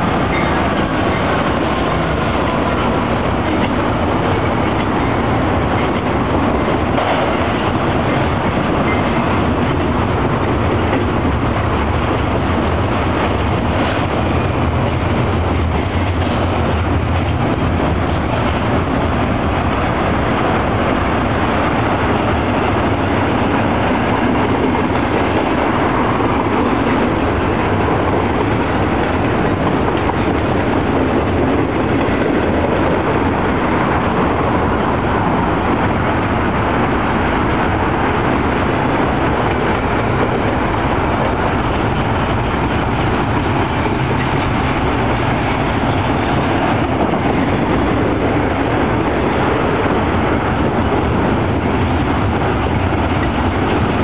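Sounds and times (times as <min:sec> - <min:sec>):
diesel locomotive engine drone: 0:00.0 - 0:54.0
train wheels rumbling on rails: 0:00.0 - 0:54.0.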